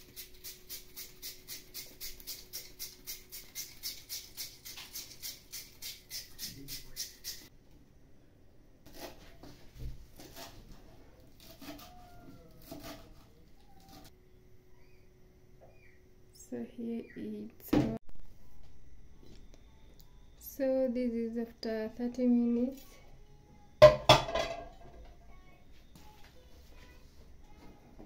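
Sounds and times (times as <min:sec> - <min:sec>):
potato grated on plastic grater: 0:00.0 - 0:07.4, 0:10.2 - 0:14.1
knife chopping herbs on wooden board: 0:12.6 - 0:13.3.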